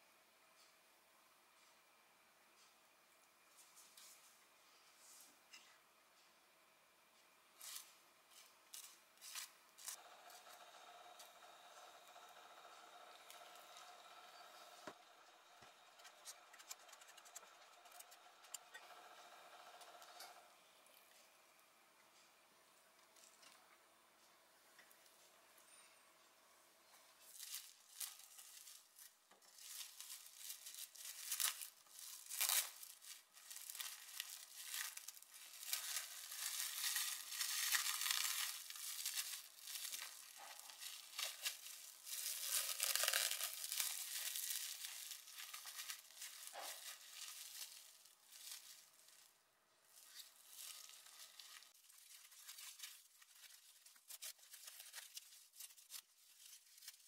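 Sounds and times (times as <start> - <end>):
plastic film crinkling: 27.2 - 57.0.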